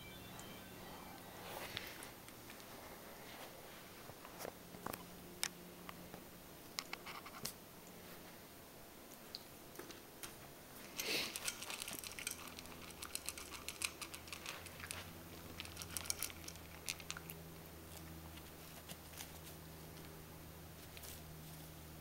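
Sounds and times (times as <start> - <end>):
teeth and kibble clicking on bowl: 11.0 - 17.4
dog crunching dry kibble: 11.0 - 19.6.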